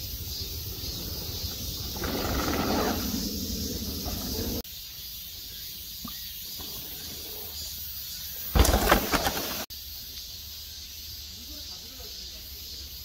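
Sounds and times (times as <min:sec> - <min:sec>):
forest ambience: 0:00.0 - 0:13.0
bike tyres hitting dirt: 0:08.4 - 0:09.6.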